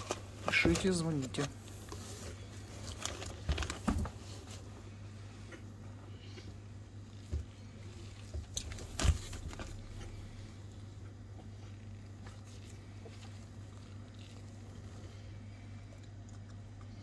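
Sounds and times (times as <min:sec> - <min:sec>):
plastic packaging crackling: 0:00.0 - 0:04.6, 0:08.1 - 0:10.3
steady low hum: 0:00.0 - 0:17.0.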